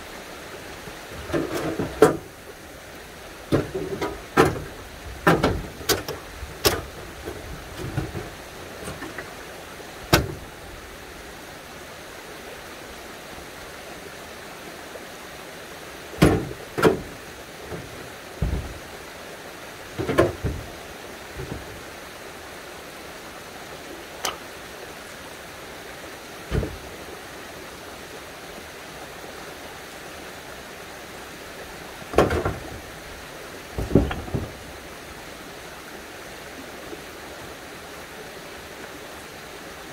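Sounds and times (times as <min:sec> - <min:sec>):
stones knocking together: 0:33.8 - 0:34.6.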